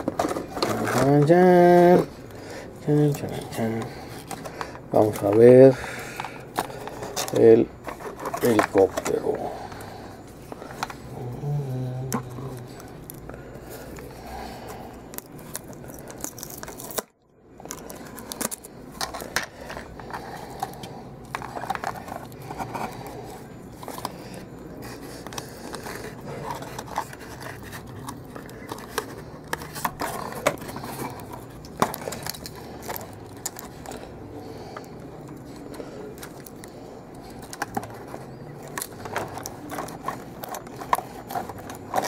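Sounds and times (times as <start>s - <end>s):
cardboard and plastic crinkling: 0.0s - 42.0s.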